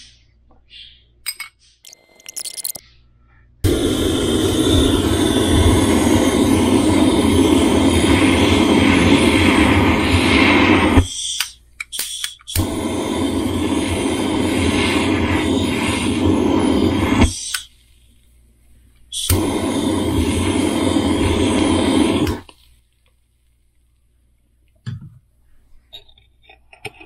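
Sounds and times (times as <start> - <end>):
torch flame hissing: 3.6 - 23.0
torch igniter clicks: 10.7 - 13.9, 15.1 - 17.7, 19.2 - 20.6, 21.2 - 22.6.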